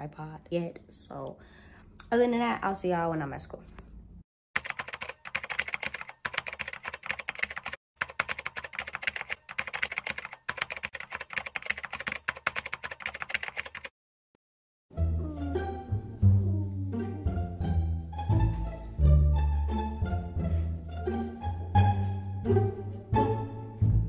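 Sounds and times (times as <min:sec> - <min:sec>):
keyboard typing clicks: 0:04.6 - 0:13.9
music: 0:14.9 - 0:24.0.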